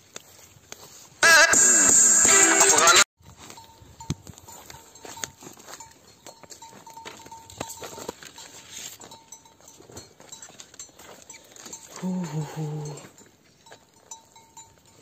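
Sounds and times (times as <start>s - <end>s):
footsteps scuffing on a path: 0.0s - 1.2s, 3.2s - 12.2s, 13.0s - 14.7s.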